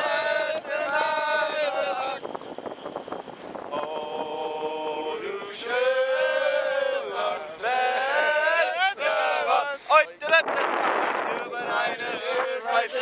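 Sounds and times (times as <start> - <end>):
man singing in long held notes: 3.7 - 9.9.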